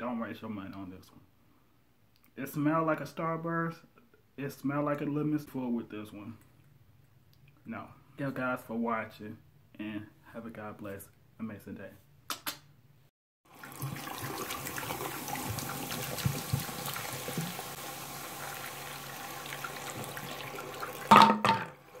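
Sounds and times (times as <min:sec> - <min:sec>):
sparkling water pouring and foaming: 0:13.5 - 0:21.1
tap water running into sink: 0:13.5 - 0:22.0.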